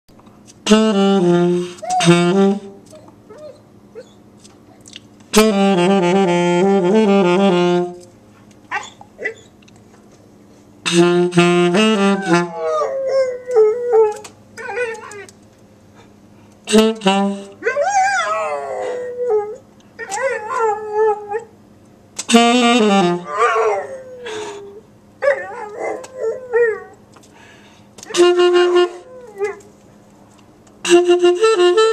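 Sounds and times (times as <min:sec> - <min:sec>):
saxophone low notes: 0:00.5 - 0:03.0, 0:05.3 - 0:08.2, 0:10.8 - 0:14.1, 0:16.6 - 0:17.6, 0:22.2 - 0:24.8, 0:28.0 - 0:29.7, 0:30.8 - 0:31.9
dog howling and whining: 0:12.1 - 0:15.3, 0:17.6 - 0:21.5, 0:23.2 - 0:27.0, 0:28.1 - 0:29.7.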